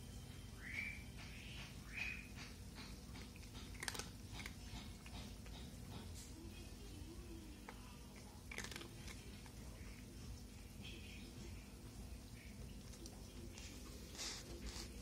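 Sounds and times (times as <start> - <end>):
kibble knocking on plastic bowl: 1.1 - 6.3
cat crunching dry kibble: 2.8 - 6.3, 7.5 - 10.4, 12.8 - 15.0.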